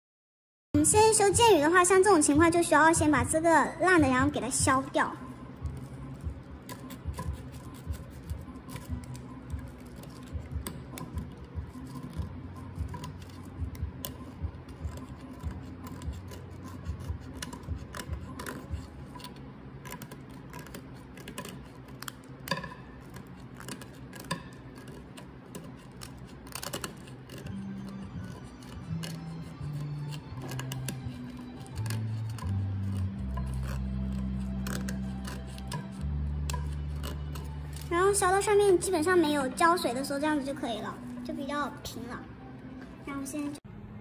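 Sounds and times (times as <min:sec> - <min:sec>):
knife scraping arrow shaft: 0:05.7 - 0:38.0.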